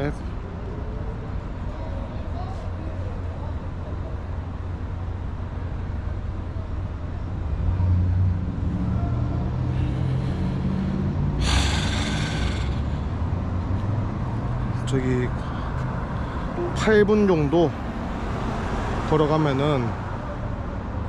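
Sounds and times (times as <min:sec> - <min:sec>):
traffic rumble: 0:00.0 - 0:21.0
vehicle engine passing: 0:07.4 - 0:19.2
loud hiss: 0:11.4 - 0:12.9.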